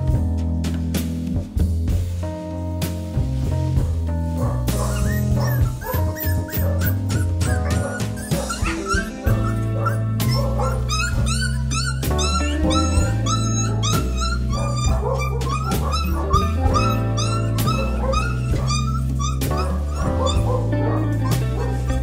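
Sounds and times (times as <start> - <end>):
background music with bass line: 0.0 - 22.0
puppy yelps and whimpers: 4.4 - 22.0.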